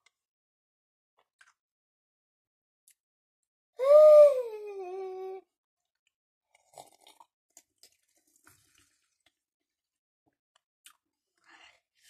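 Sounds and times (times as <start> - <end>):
child humming mmm: 3.8 - 5.4
faint chewing: 5.9 - 9.4.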